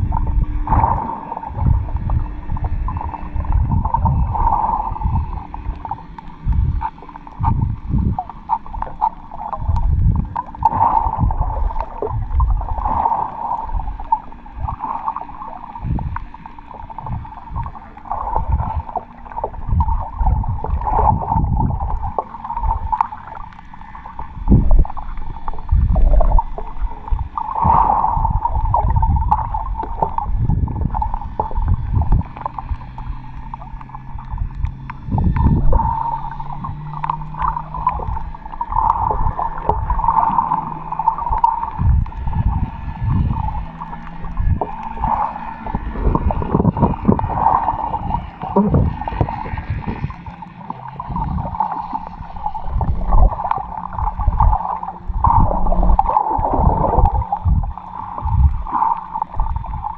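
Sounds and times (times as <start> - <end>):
low underwater thumps: 0.0 - 14.9, 15.6 - 23.1, 24.2 - 50.4, 52.2 - 59.9
mid-pitched hum: 0.0 - 59.9
water gurgling underwater: 0.0 - 59.9.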